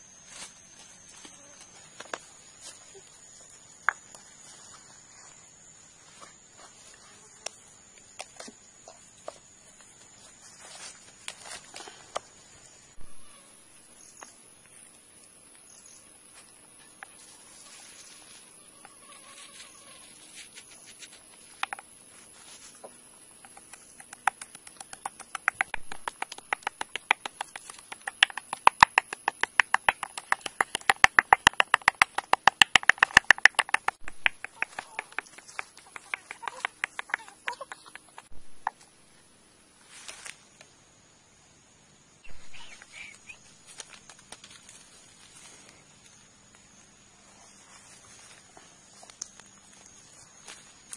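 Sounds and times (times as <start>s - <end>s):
wooden pestle pounding in bowl: 23.6s - 35.4s.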